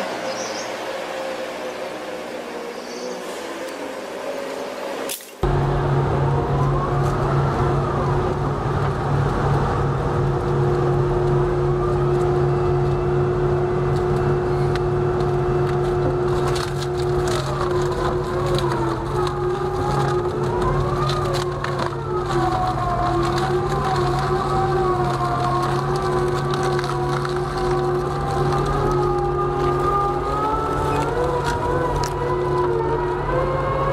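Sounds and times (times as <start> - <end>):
shredder low drone: 0.0 - 33.9
wood cracking and splintering: 15.1 - 33.9.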